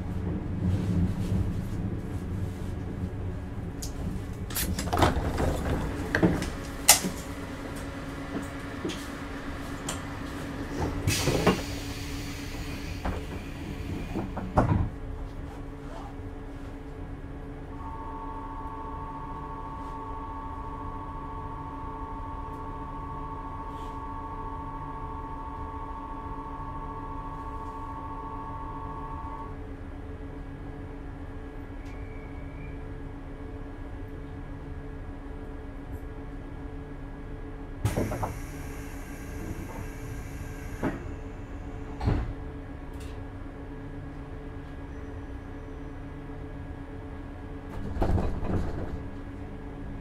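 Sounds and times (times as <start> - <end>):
train equipment hum: 0.0 - 50.0
two-note electrical tone: 17.7 - 29.6.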